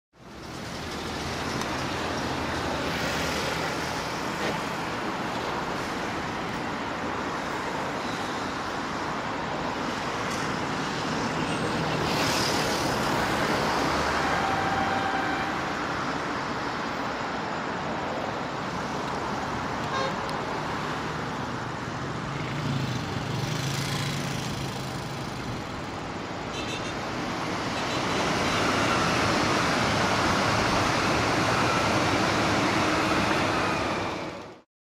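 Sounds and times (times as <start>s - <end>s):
road traffic noise: 0.1s - 34.7s
car horn: 14.2s - 15.7s, 19.9s - 20.3s, 26.5s - 27.0s.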